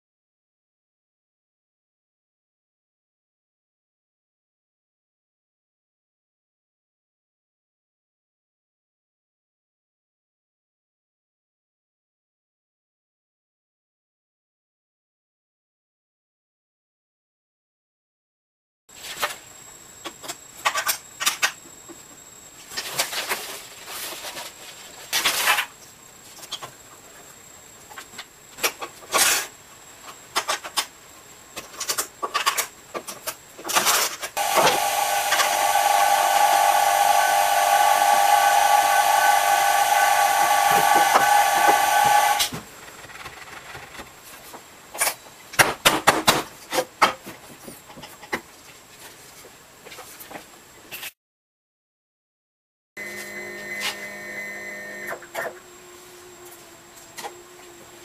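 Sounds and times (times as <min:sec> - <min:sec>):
vacuum system hiss whistling: 0:34.4 - 0:42.6, 0:53.0 - 0:58.0.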